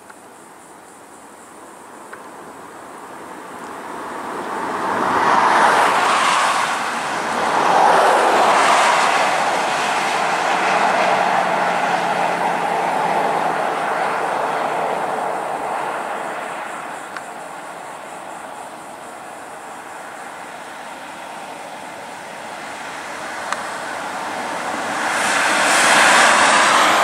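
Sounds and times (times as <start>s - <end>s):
steady traffic noise: 0.0s - 27.0s
vehicles passing on highway: 0.0s - 27.0s.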